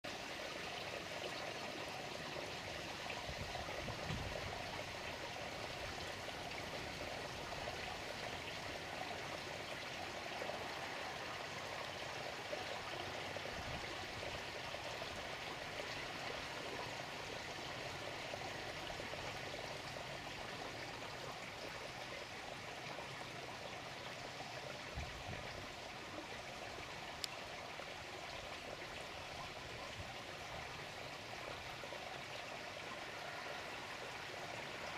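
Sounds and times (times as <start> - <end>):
water running and trickling: 0.1 - 34.9.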